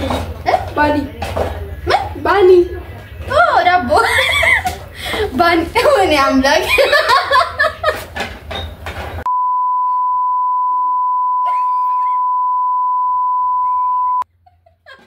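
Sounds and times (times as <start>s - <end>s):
people laughing: 4.0s - 5.4s, 6.6s - 8.2s, 13.7s - 15.0s
censor bleep: 9.3s - 14.2s.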